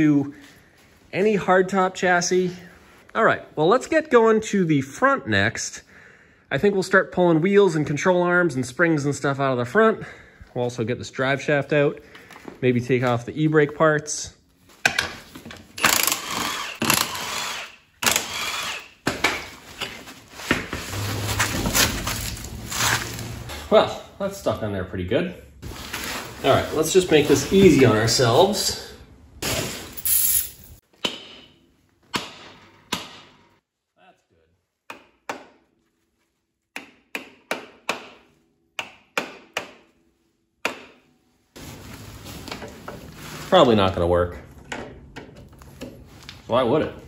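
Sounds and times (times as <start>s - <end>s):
cordless impact wrench bursts: 15.8s - 19.0s.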